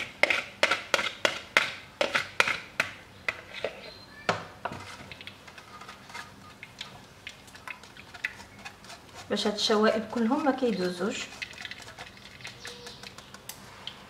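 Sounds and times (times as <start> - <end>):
whisk scraping metal mesh strainer: 4.7 - 6.9, 7.5 - 13.4.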